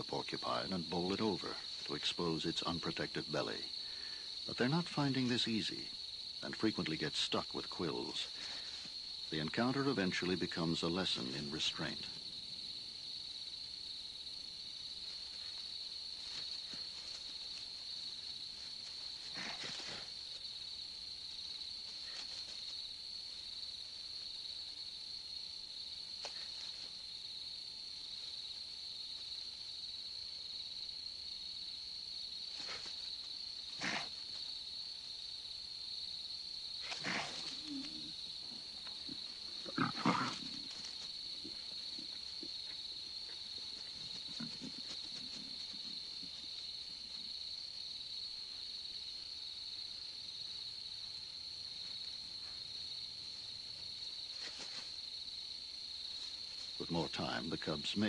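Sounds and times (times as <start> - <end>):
crickets chirring: 0.0 - 58.0
lion cubs snarling and growling: 18.8 - 20.4, 33.7 - 34.4, 36.8 - 47.4.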